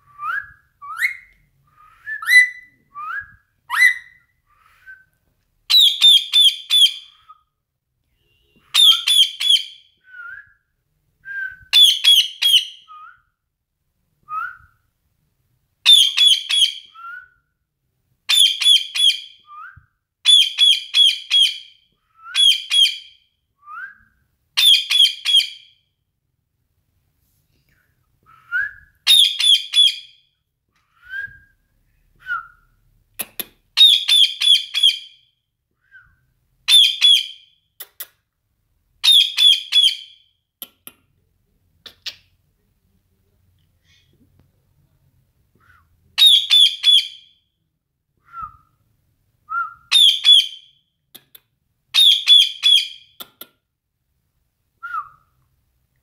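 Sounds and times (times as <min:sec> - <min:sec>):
parakeet rapid high-pitched calls: 0:03.7 - 0:04.2, 0:08.7 - 0:09.8, 0:15.9 - 0:16.8, 0:18.3 - 0:19.3, 0:29.1 - 0:30.1, 0:33.8 - 0:35.1, 0:36.7 - 0:37.4, 0:39.0 - 0:40.2, 0:46.2 - 0:47.2, 0:49.9 - 0:50.7, 0:52.0 - 0:53.0.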